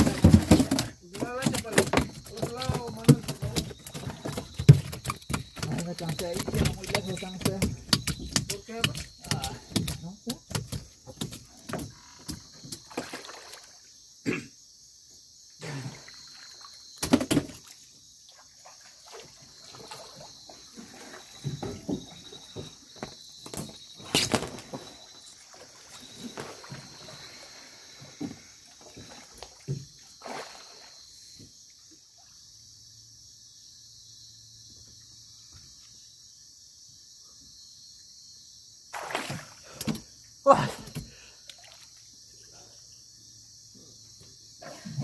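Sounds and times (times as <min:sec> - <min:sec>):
water trickling: 0:00.0 - 0:13.8
water sloshing and splashing: 0:00.0 - 0:13.9, 0:16.0 - 0:31.3, 0:38.9 - 0:42.4.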